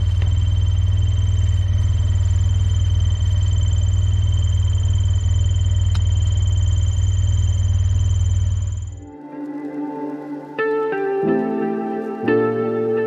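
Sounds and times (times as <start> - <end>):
vehicle engine rumble: 0.0 - 9.7
faint high-pitched whine: 0.0 - 13.0.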